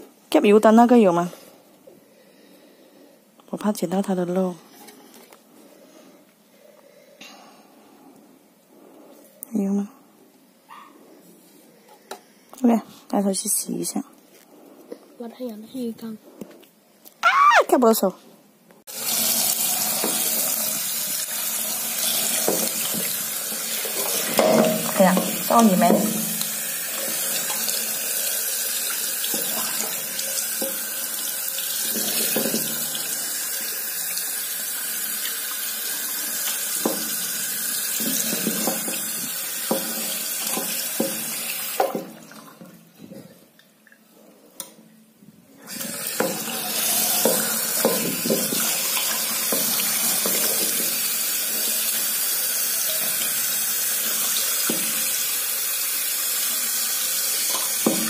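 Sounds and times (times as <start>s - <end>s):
tap water running into sink: 18.9s - 42.7s, 45.7s - 58.0s.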